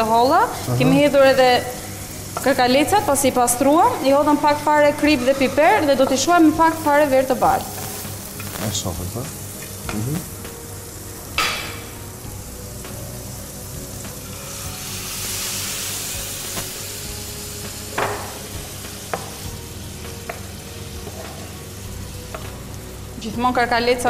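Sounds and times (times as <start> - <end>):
food sizzling in a frying pan: 0.0 - 24.0.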